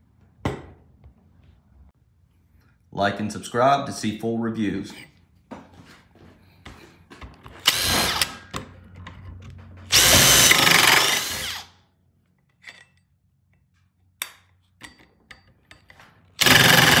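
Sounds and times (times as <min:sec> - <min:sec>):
power drill boring into wood: 0:07.6 - 0:08.4, 0:09.9 - 0:11.7, 0:16.4 - 0:17.0.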